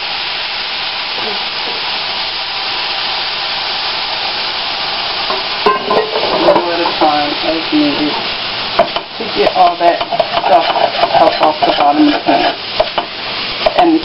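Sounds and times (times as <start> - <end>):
meat sizzling in a pan: 0.0 - 14.0
spatula scraping a pan: 8.8 - 13.8.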